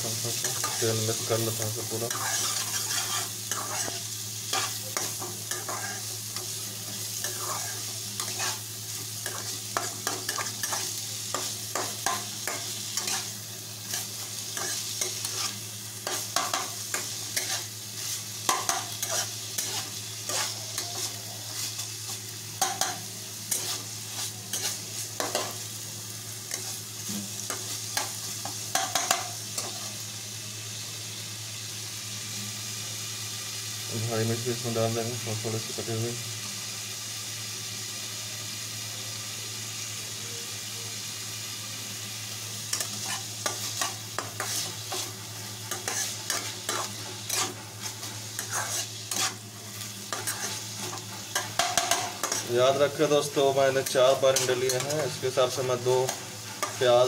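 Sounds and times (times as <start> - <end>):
onions sizzling in oil: 0.0 - 57.0
spatula scraping and tapping pan: 42.7 - 49.4, 50.1 - 52.5.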